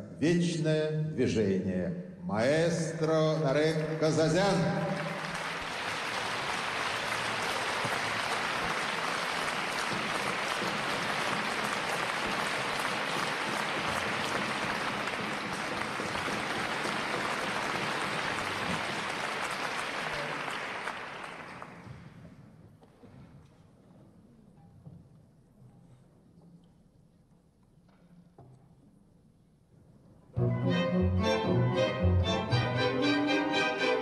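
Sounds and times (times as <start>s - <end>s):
audience applauding: 3.4s - 22.2s.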